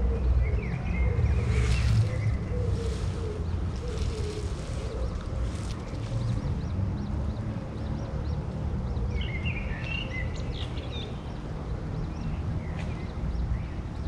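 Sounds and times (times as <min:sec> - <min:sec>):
steady low rumble: 0:00.0 - 0:08.4
small birds chirping: 0:00.0 - 0:14.0.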